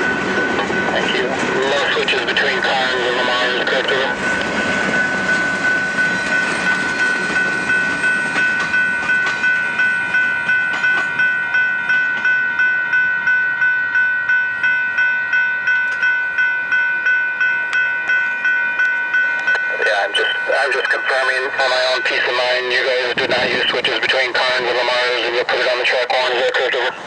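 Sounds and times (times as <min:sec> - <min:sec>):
railroad crossing bell ringing: 0:00.0 - 0:27.0.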